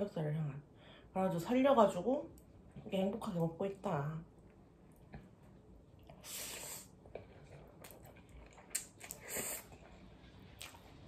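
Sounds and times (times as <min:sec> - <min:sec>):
hissing noodle slurps: 0:06.2 - 0:07.0, 0:08.7 - 0:09.8.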